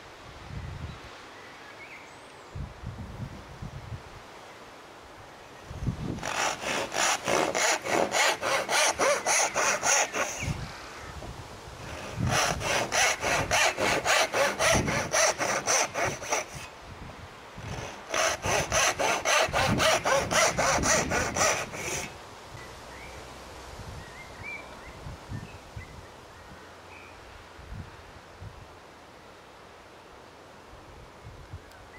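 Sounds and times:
hand saw cutting wood: 6.1s - 10.6s, 11.8s - 16.7s, 17.6s - 22.2s.

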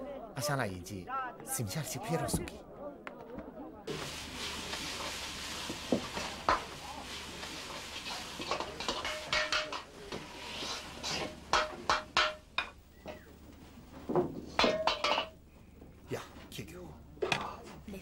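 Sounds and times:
metal ladle scraping a wok: 3.9s - 13.2s, 14.6s - 15.4s
steady hiss: 3.9s - 16.7s.

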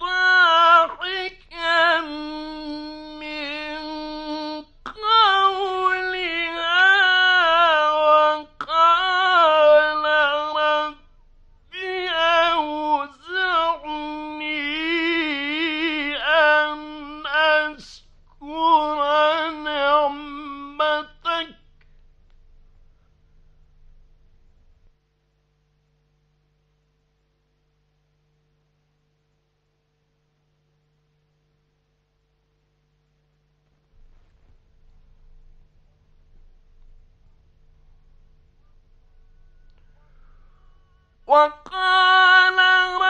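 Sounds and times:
man chanting melodically: 0.0s - 11.1s, 11.7s - 21.6s, 39.9s - 43.0s.

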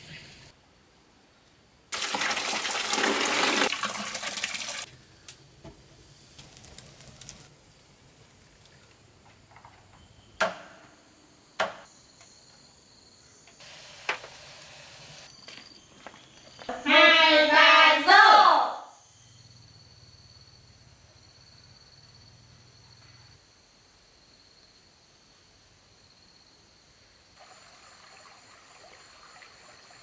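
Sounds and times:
water rushing: 1.9s - 4.9s, 27.4s - 30.0s.

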